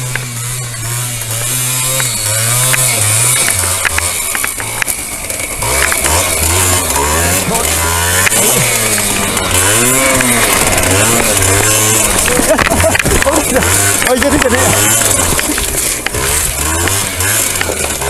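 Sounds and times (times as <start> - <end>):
motorcycle engines revving: 0.0 - 18.0.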